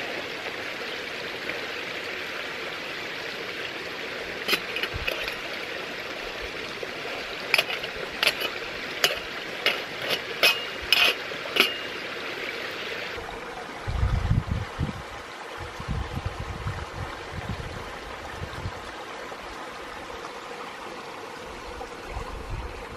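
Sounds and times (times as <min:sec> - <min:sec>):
spork clinking against metal mug: 0:04.5 - 0:05.4, 0:07.5 - 0:12.0.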